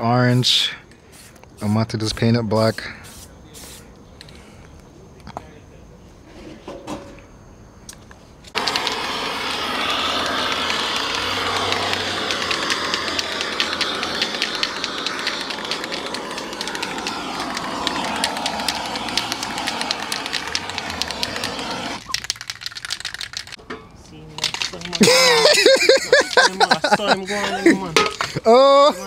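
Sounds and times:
gas torch roaring: 8.5s - 22.1s.

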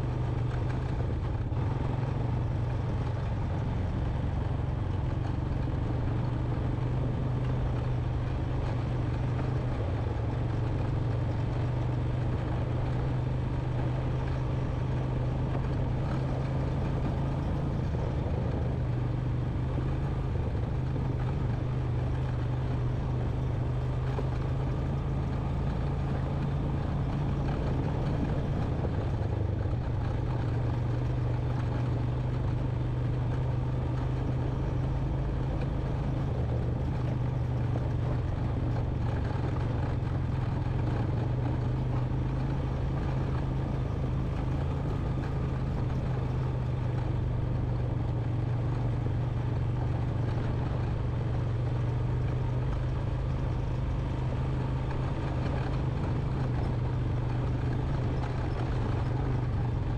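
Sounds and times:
atv engine droning: 0.0s - 59.9s.

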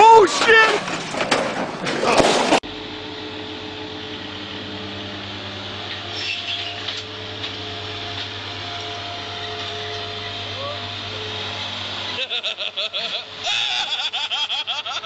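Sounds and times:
mower engine humming: 0.0s - 15.0s.

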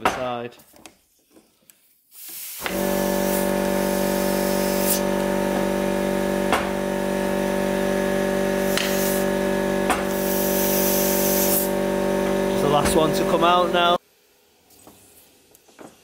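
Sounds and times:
compressed air hissing: 2.1s - 5.2s, 8.6s - 9.4s, 10.0s - 11.7s.

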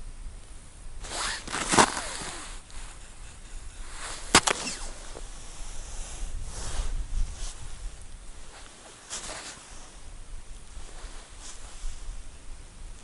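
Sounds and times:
jacket rustling: 1.0s - 3.0s, 3.8s - 5.4s, 8.4s - 10.0s.

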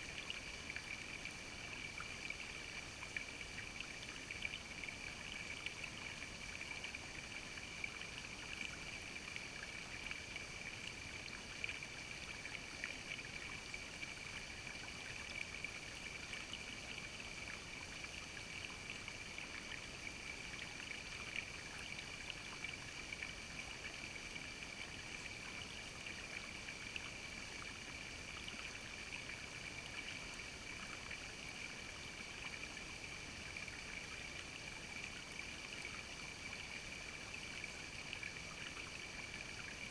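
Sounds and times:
creek water trickling over rocks: 0.0s - 39.9s.

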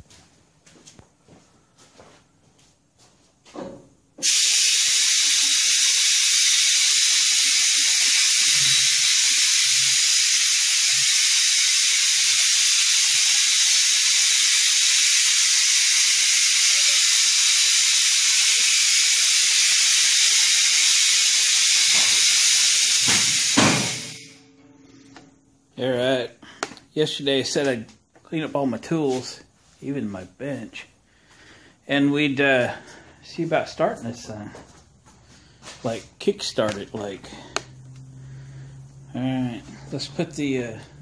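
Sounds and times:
loud steady hiss: 4.2s - 24.4s.

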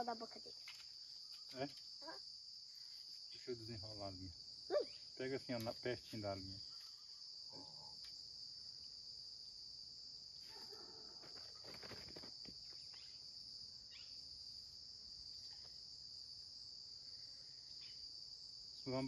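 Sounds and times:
insects buzzing: 0.0s - 19.0s
faint rustles and clicks: 10.5s - 13.0s.

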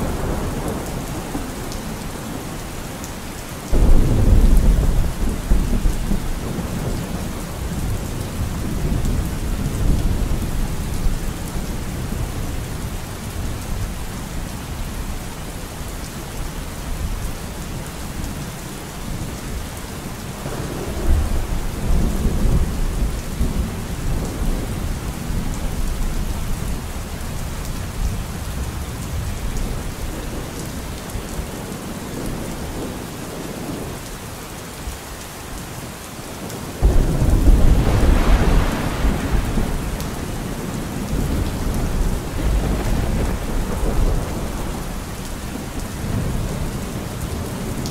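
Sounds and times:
rolling thunder: 0.0s - 2.5s, 3.7s - 12.5s, 20.4s - 26.0s, 36.8s - 47.9s
steady rain: 0.0s - 47.9s.

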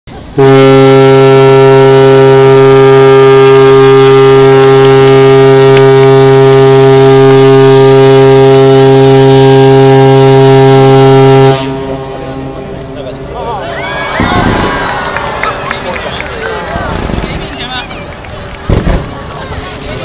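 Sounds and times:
ship's horn blast: 0.2s - 13.4s.

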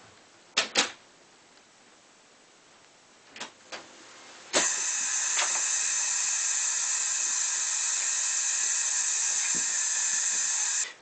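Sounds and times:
aerosol spray hissing: 4.6s - 11.0s.

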